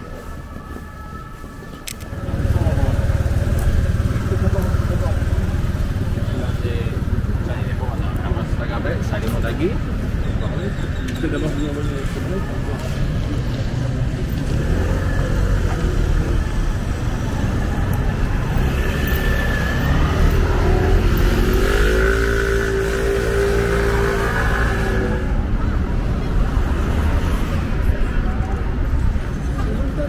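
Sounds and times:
steady low traffic rumble: 0.0 - 30.0
vehicle engine running: 2.2 - 10.2.

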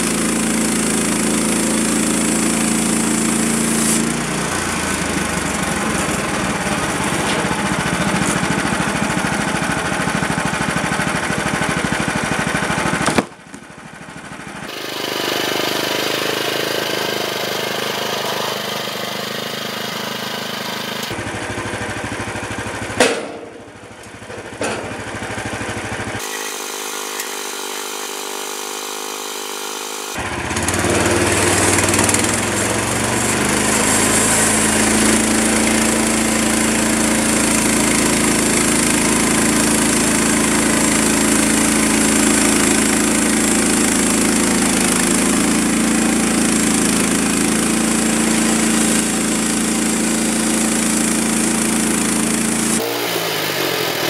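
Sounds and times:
band saw blade cutting log: 0.0 - 13.6, 14.7 - 21.2, 26.1 - 54.0
sawmill gas engine running: 0.0 - 54.0
sharp knock: 13.0 - 13.4, 23.0 - 23.6.

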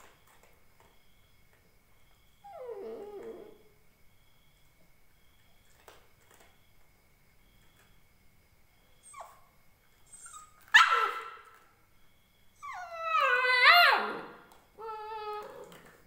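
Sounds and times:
puppy whining howl: 2.4 - 3.7, 10.1 - 11.6, 12.6 - 16.0
puppy squeaking: 10.1 - 11.3
puppy barking: 10.3 - 11.4.

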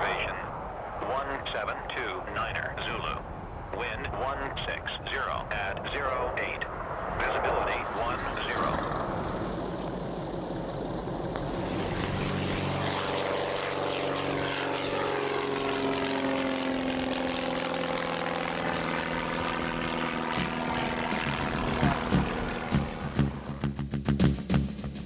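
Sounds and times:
propeller airplane engine droning: 0.0 - 25.0.

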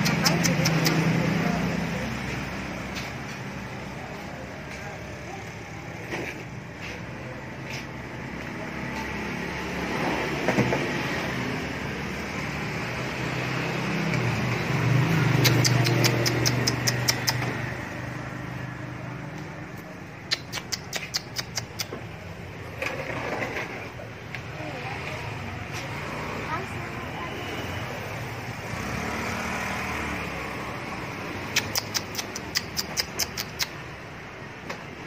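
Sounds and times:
rapid sharp clicks: 0.0 - 1.2, 15.4 - 17.5, 20.2 - 21.9, 31.5 - 33.9
traffic noise: 0.0 - 35.0
vehicle passing: 0.0 - 35.0.

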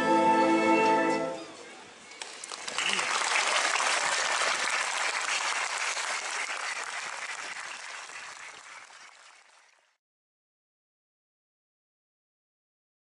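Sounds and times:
audience applauding: 2.1 - 10.0.

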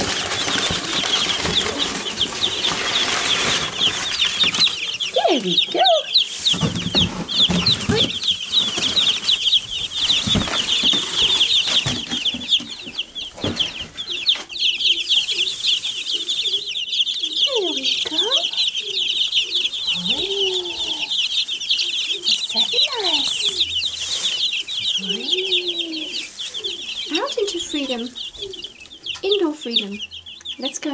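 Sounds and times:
knocks and rustles in straw: 0.0 - 29.4
chicks peeping: 0.0 - 30.9.

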